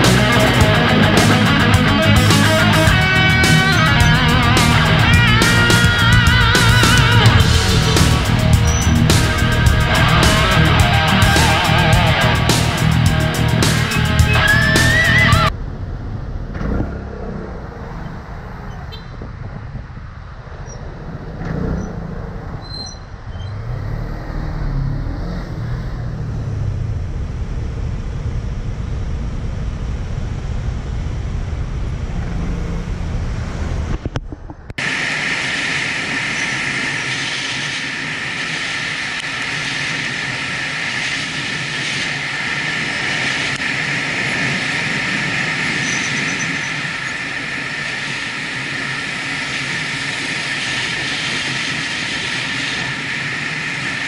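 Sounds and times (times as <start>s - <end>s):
motorcycle engine running: 0.0s - 20.1s, 20.8s - 34.7s
wind and road noise: 0.0s - 54.0s.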